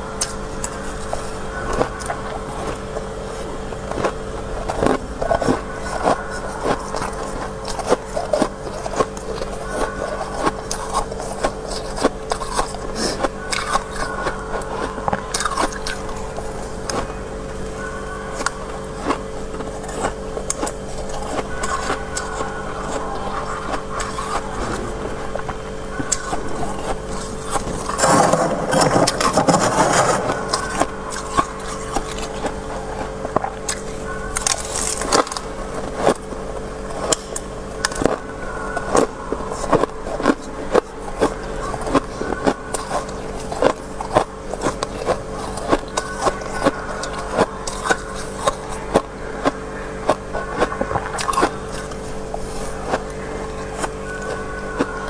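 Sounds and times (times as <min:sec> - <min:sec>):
metal scraping frost: 0:27.6 - 0:30.9.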